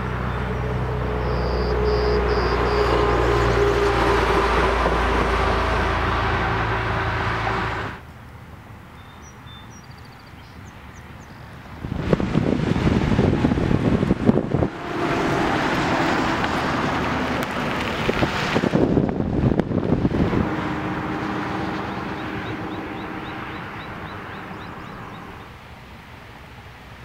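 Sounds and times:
wind buffeting microphone: 0:11.7 - 0:25.5.

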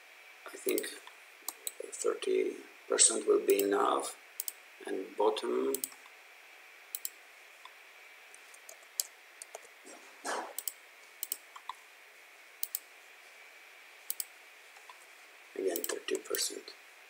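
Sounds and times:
faint high hum: 0:00.0 - 0:17.0
mouse and keyboard clicks: 0:10.3 - 0:11.8, 0:14.1 - 0:14.3, 0:15.8 - 0:16.0.

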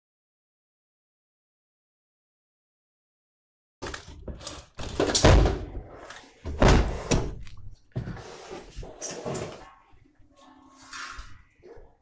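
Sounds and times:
washing machine heavy thumps: 0:06.5 - 0:07.3.

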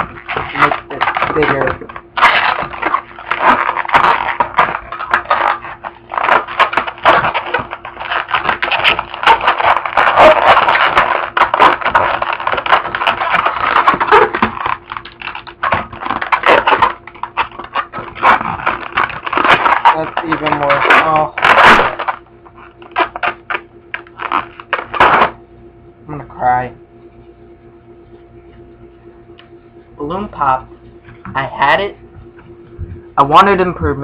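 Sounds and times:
balloon rubbery clicks and rubs: 0:00.0 - 0:25.4.

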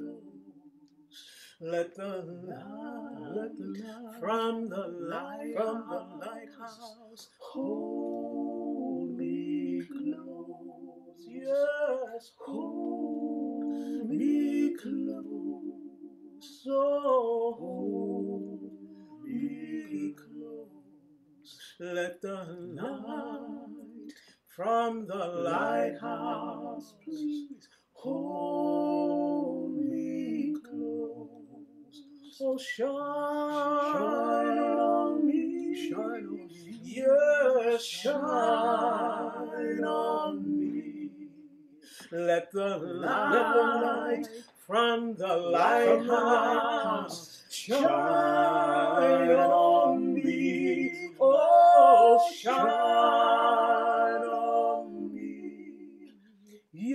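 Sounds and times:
woman singing a cappella harmony: 0:01.6 - 0:20.7, 0:21.6 - 0:41.4, 0:42.0 - 0:56.9.

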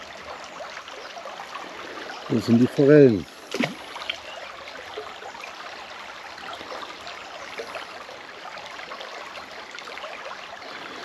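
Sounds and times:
stream flowing: 0:00.0 - 0:11.0.

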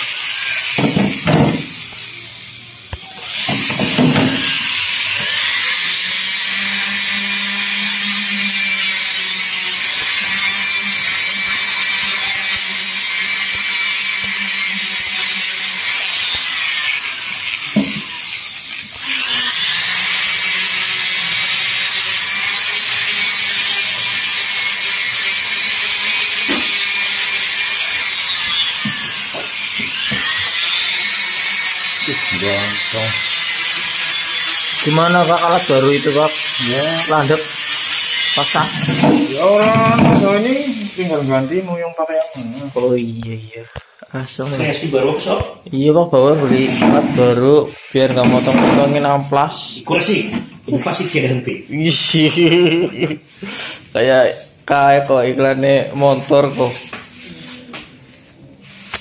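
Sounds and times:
rotary tool grinding metal: 0:00.0 - 0:43.1, 0:46.2 - 0:54.6.

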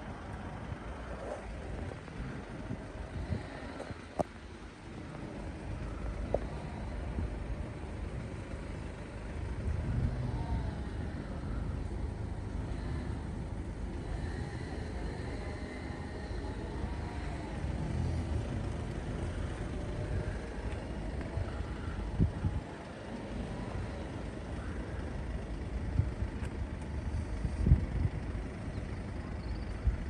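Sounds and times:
cars driving past: 0:00.0 - 0:29.9.

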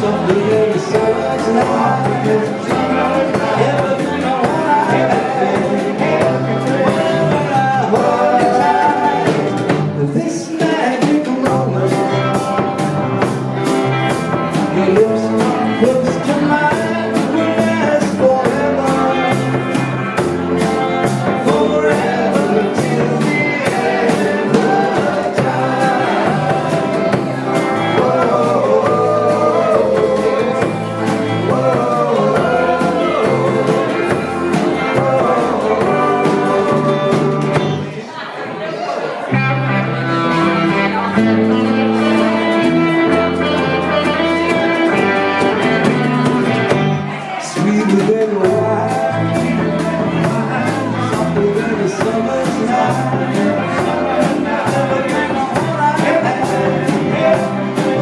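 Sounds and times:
steady drum beat: 0:00.0 - 0:37.9, 0:40.9 - 0:58.0
person singing: 0:00.0 - 0:38.0, 0:39.4 - 0:58.0
rock and roll band playing: 0:00.0 - 0:38.3, 0:39.1 - 0:58.0.

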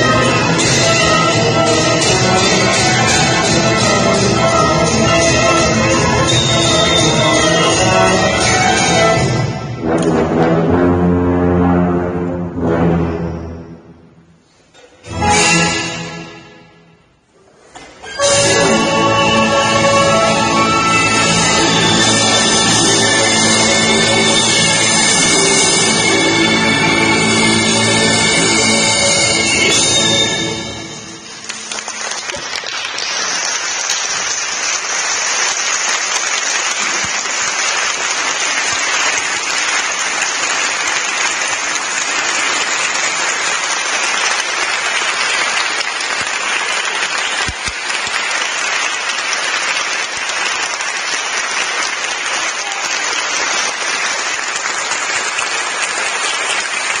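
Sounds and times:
audience applauding: 0:18.4 - 0:30.1, 0:30.9 - 0:57.0.

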